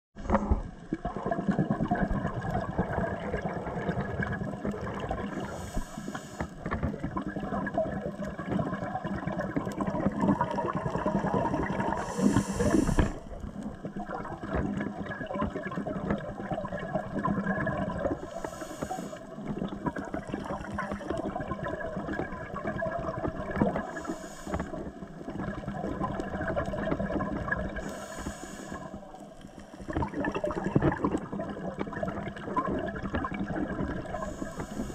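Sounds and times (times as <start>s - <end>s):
muffled underwater rush: 0.2s - 34.9s
scuba regulator breathing hiss: 5.3s - 6.6s, 11.9s - 13.3s, 18.2s - 19.4s, 23.8s - 25.0s, 27.8s - 29.2s, 34.1s - 34.9s.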